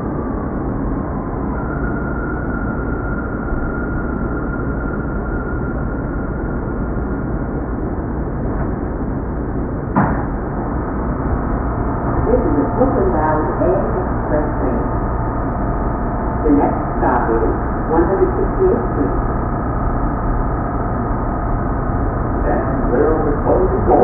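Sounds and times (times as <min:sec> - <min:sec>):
subway train rumble: 0:00.0 - 0:24.0
wavering ringing tones: 0:01.1 - 0:08.2, 0:10.7 - 0:24.0
sharp knock: 0:10.0 - 0:10.4.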